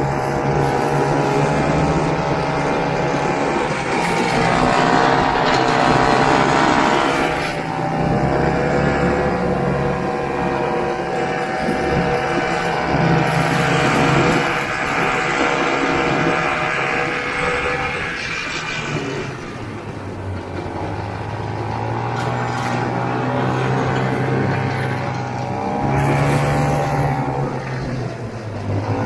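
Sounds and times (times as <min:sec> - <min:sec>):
snowmobile two-stroke engine running: 0:00.0 - 0:29.0.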